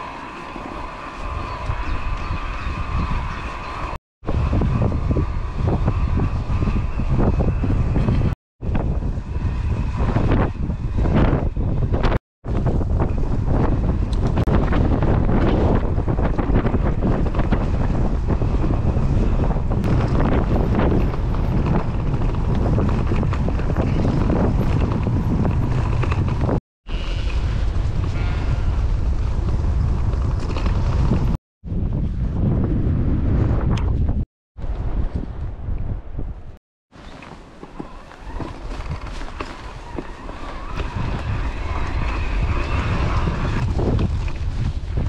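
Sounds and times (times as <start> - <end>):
wind buffeting microphone: 0.0 - 45.0
mountain bike rumbling on rough trail: 1.3 - 33.0, 37.0 - 45.0.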